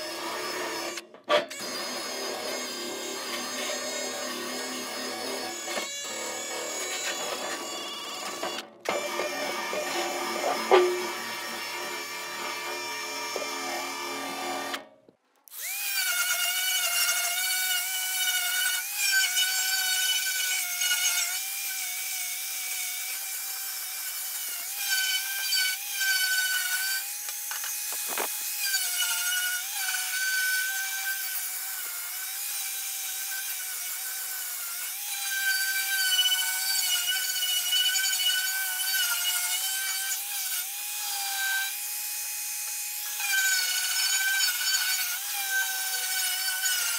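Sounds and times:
drill spinning wire brush: 0:00.0 - 0:14.8, 0:23.1 - 0:33.0
angle grinder on sheet metal: 0:00.0 - 0:14.9, 0:15.5 - 0:46.9.

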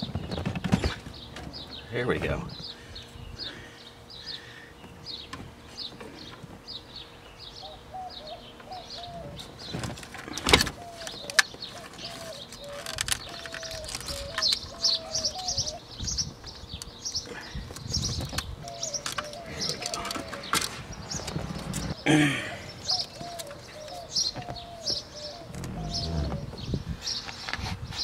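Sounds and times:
birds chirping: 0:00.0 - 0:28.0
plastic parts clicking and knocking: 0:12.8 - 0:14.6.

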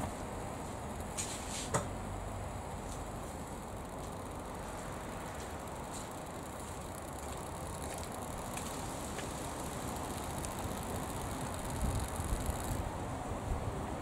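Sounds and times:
low rumble and hiss: 0:00.0 - 0:14.0
faint ticks: 0:02.9 - 0:12.8.

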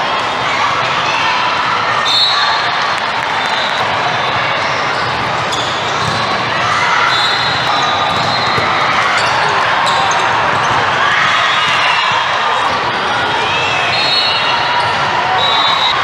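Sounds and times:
crowd voices talking and calling: 0:00.0 - 0:16.0
volleyball thuds: 0:07.5 - 0:09.4.

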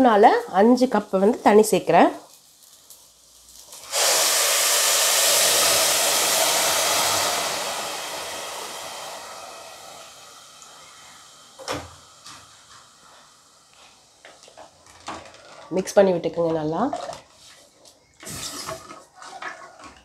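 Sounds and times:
water hissing in hot pot: 0:00.0 - 0:15.0, 0:18.2 - 0:18.8.

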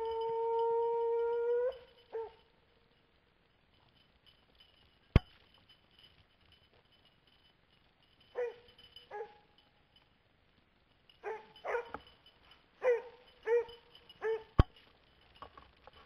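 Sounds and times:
hound barking: 0:08.4 - 0:09.5, 0:11.2 - 0:12.0, 0:12.8 - 0:14.6.

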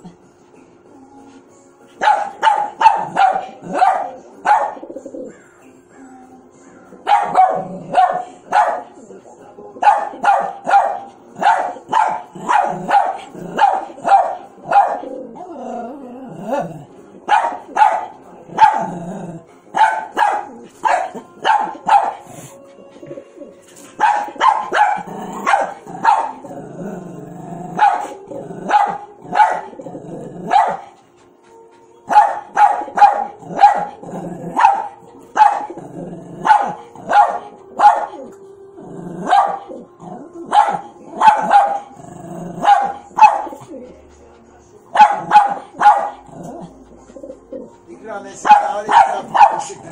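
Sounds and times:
small dog barking: 0:02.0 - 0:04.8, 0:07.0 - 0:08.9, 0:09.8 - 0:15.1, 0:17.3 - 0:18.9, 0:19.7 - 0:22.2, 0:24.0 - 0:26.4, 0:27.7 - 0:29.7, 0:30.5 - 0:30.9, 0:32.1 - 0:34.0, 0:34.6 - 0:35.7, 0:36.4 - 0:38.3, 0:39.2 - 0:39.7, 0:40.5 - 0:41.9, 0:42.6 - 0:43.6, 0:45.0 - 0:46.3, 0:48.5 - 0:49.8.

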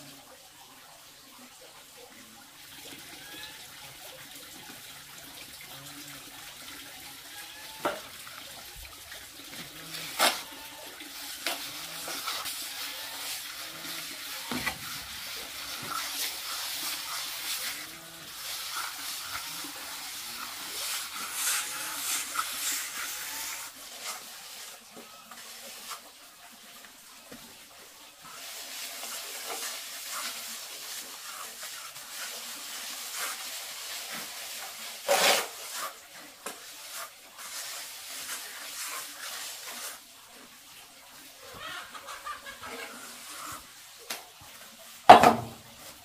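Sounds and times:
trowel scraping wet cement: 0:09.5 - 0:26.0, 0:28.3 - 0:40.1.

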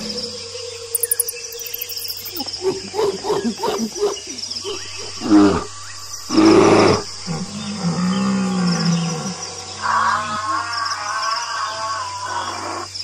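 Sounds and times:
crickets chirping: 0:00.0 - 0:13.0
roar-like animal call: 0:04.6 - 0:12.9.

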